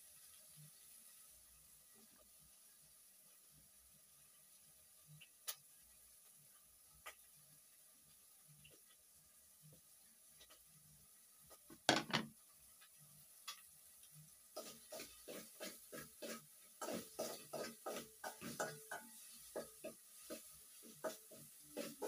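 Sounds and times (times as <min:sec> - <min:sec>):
plate knocking on table: 0:11.7 - 0:12.3.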